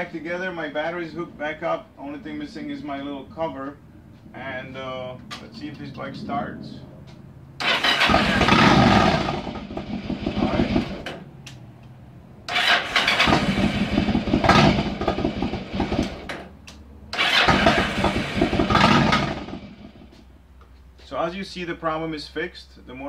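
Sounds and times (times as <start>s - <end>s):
motorcycle engine starting: 5.0s - 11.6s, 12.4s - 20.2s.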